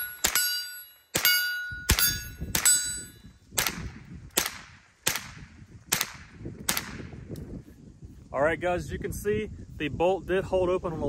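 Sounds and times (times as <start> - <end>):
rifle shots: 0.0 - 3.0, 3.6 - 7.2
steel target ringing: 0.0 - 3.3.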